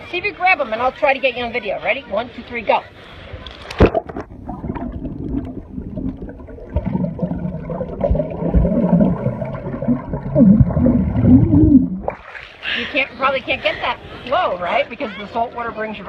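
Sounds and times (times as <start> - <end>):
muffled underwater gurgling: 3.8 - 12.6
splash into water: 12.0 - 12.7.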